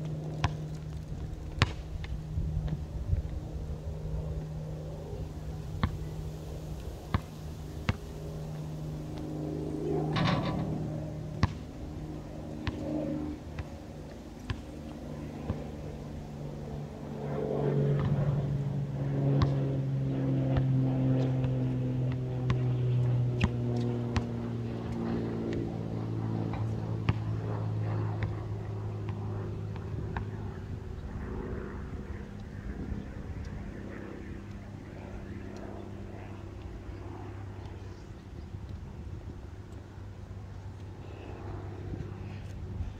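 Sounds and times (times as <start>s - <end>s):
passing engine hum: 0.0s - 42.9s
basketball bouncing on concrete: 11.4s - 11.6s.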